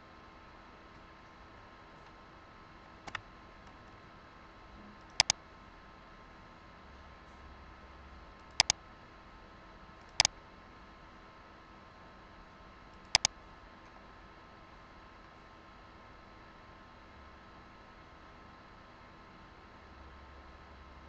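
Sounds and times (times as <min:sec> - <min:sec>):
faint steady hum: 0:00.0 - 0:21.0
computer mouse clicks: 0:05.0 - 0:05.4, 0:08.4 - 0:08.8, 0:10.0 - 0:10.3, 0:13.0 - 0:13.3.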